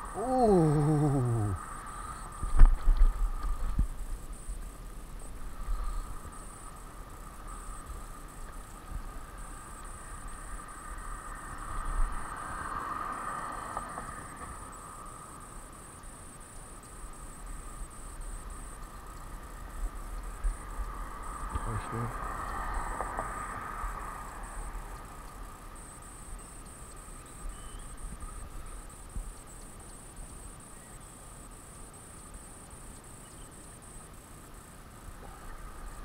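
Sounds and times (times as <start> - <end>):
insects chirping: 0.0 - 36.0
wind and handling rumble: 1.7 - 10.4.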